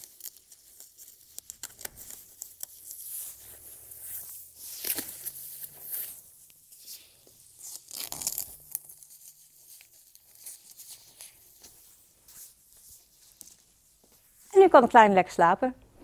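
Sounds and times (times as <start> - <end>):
velcro ripping: 0.0 - 11.8
fabric rustling: 0.0 - 14.7.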